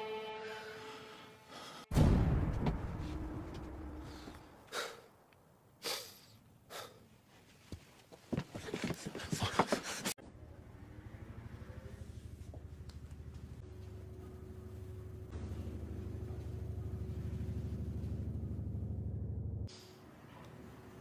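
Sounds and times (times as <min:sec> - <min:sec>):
deep boom: 0:01.9 - 0:04.6
man breathing heavily: 0:04.0 - 0:05.2, 0:05.8 - 0:07.1.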